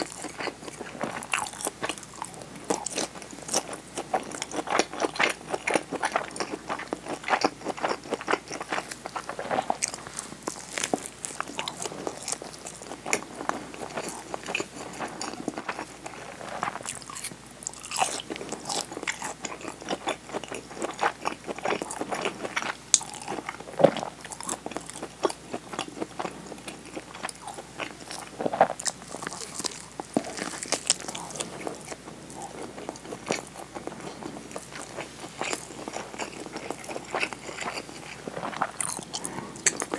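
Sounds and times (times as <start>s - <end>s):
chewing rice ball: 0.0s - 39.9s.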